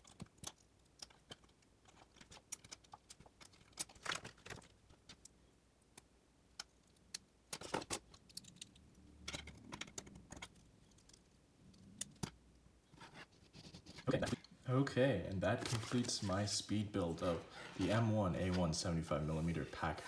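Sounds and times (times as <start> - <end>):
plastic bricks clicking: 0.0 - 5.4, 6.0 - 12.4.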